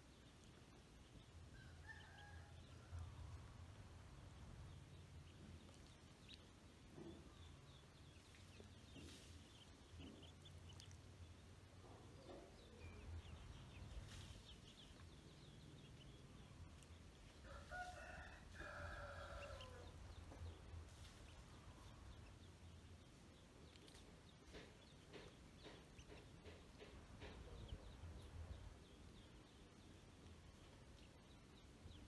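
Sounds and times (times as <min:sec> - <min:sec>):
ducklings peeping: 0:04.2 - 0:17.4, 0:19.3 - 0:32.0
rooster crowing: 0:17.4 - 0:19.9.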